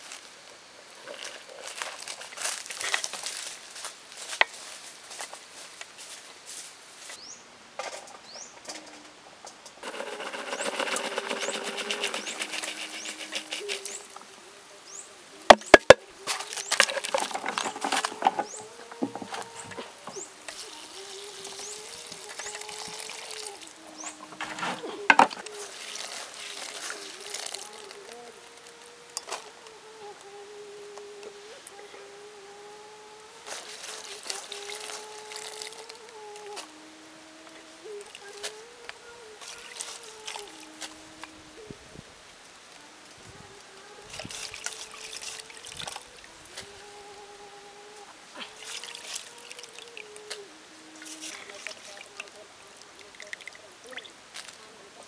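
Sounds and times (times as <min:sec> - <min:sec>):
beetles rustling in basket: 0:01.0 - 0:05.4, 0:09.8 - 0:29.5, 0:33.4 - 0:36.7, 0:37.8 - 0:40.9, 0:44.0 - 0:46.7, 0:51.0 - 0:54.7
water trickling and sloshing: 0:16.3 - 0:27.9, 0:44.0 - 0:46.3, 0:48.4 - 0:54.6.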